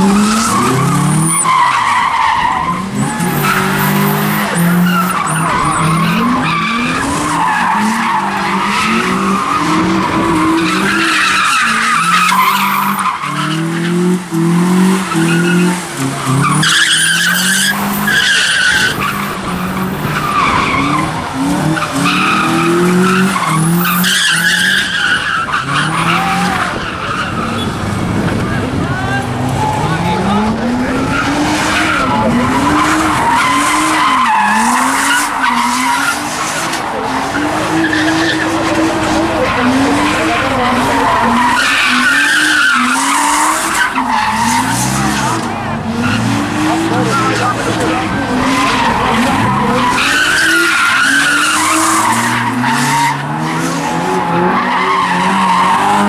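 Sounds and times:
tyres squealing: 0.0 - 27.8, 28.8 - 56.0
car engine revving: 0.0 - 56.0.

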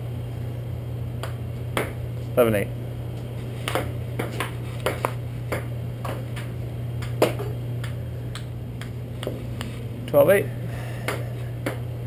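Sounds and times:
table tennis ball tapping: 3.7 - 6.2.

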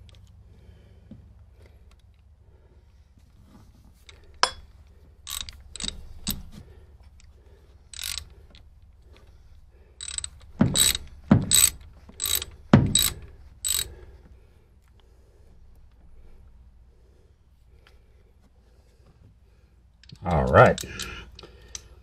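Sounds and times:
ratchet wrench clicking: 5.2 - 6.5, 7.9 - 8.4, 10.0 - 13.9, 20.0 - 21.9.

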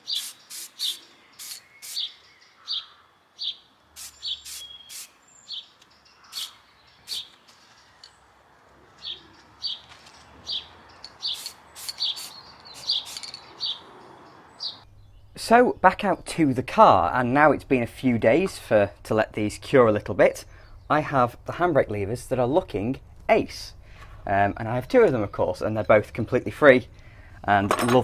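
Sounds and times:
spray-paint can hiss: 0.0 - 2.1, 4.0 - 5.2, 11.3 - 13.4
small bird chirping: 0.0 - 8.3, 8.9 - 15.4.

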